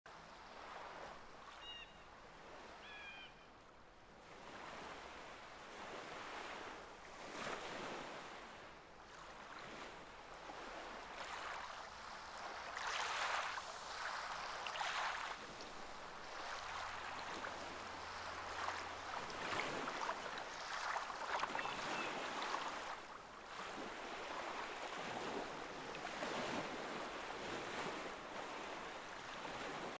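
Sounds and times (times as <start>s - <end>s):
gull calls: 2.8s - 3.5s
sea water splashing: 10.5s - 30.0s.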